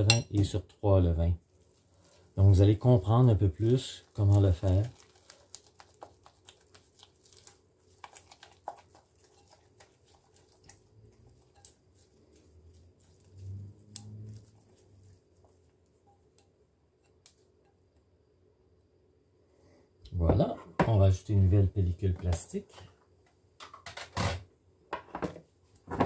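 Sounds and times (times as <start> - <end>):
spatula stirring and scraping in bowl: 1.5 - 17.8.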